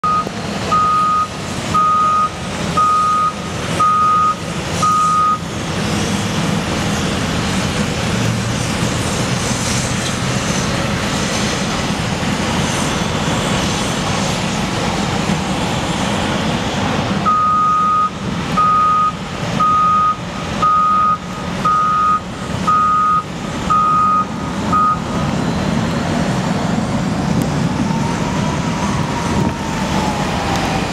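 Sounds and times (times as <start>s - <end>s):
reversing alarm beeps: 0.0s - 5.4s, 17.2s - 25.1s
diesel engines rumbling: 0.0s - 30.9s.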